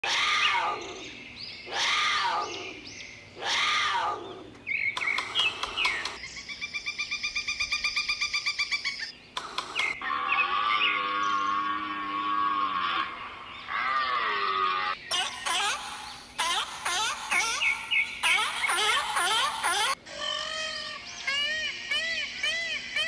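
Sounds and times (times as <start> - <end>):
bird chirps: 0.2 - 12.4, 15.0 - 20.0
fast bird trill: 3.5 - 10.4, 15.0 - 20.0
bird calls falling in pitch: 9.7 - 20.0.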